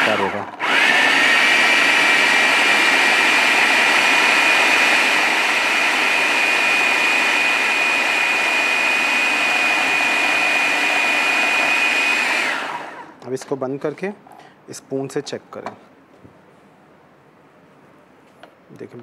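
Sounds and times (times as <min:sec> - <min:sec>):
food chopper motor whining: 0:00.0 - 0:13.2.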